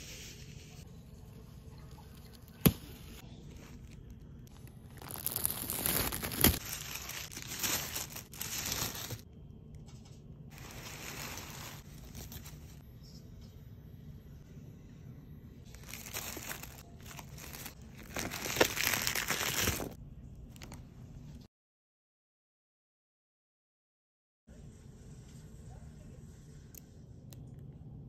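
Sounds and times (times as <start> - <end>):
tissue paper rustling: 4.8 - 9.2, 10.5 - 12.8, 15.7 - 20.0.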